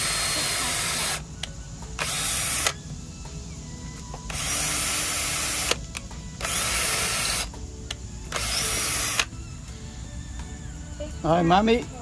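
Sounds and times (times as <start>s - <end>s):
power drill driving screws into wood: 0.0s - 1.2s, 2.0s - 2.8s, 4.2s - 7.5s, 8.3s - 9.3s.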